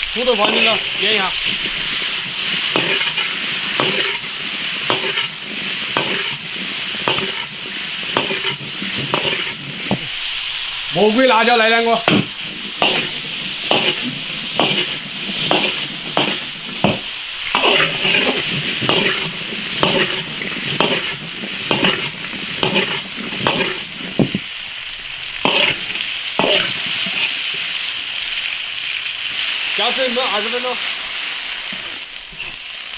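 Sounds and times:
oil sizzling in a wok: 0.0 - 32.9
metal ladle scraping a wok: 0.1 - 10.8, 12.1 - 24.5, 25.4 - 27.7, 31.7 - 32.7.

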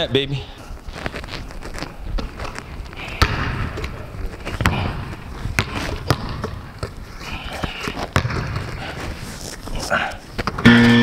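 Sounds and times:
basketball bouncing on hardwood: 3.2 - 3.9, 4.6 - 6.9, 8.2 - 8.6.

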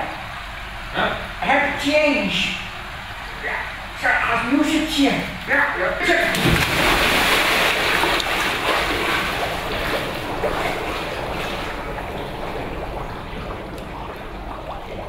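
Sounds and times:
water jets churning and splashing: 0.0 - 15.0.

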